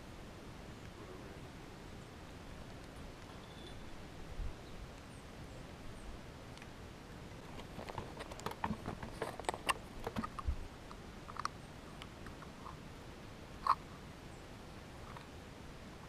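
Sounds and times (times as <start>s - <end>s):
hands handling fishing tackle: 7.5s - 10.4s.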